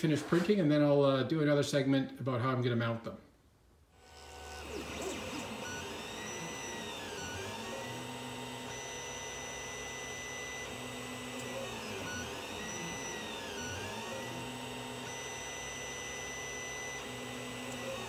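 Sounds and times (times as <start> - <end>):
stepper motors whining: 4.0 - 18.0.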